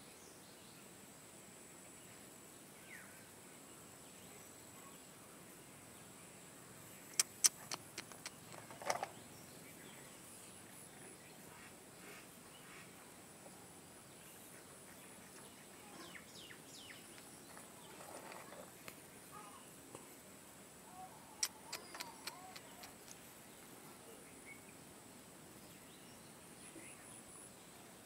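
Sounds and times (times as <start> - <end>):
faint bird chirps: 1.9 - 13.0, 14.0 - 20.0, 20.8 - 24.9, 25.5 - 28.0
sharp clicks: 7.2 - 9.1, 21.4 - 23.2.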